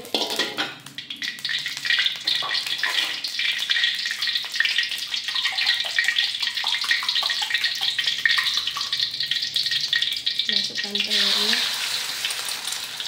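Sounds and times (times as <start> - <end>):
hot oil sizzling and crackling: 0.0 - 13.0.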